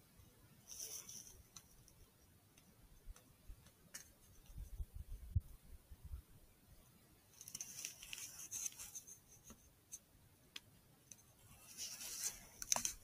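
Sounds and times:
handling scratching and rubbing: 0.6s - 4.9s, 7.3s - 10.1s, 11.1s - 13.0s.

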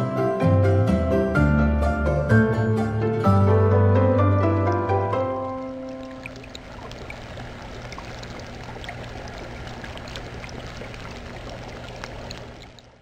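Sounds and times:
aquarium water trickling: 4.7s - 13.0s
filter hum: 4.9s - 13.0s
bubbles popping: 5.2s - 13.0s.

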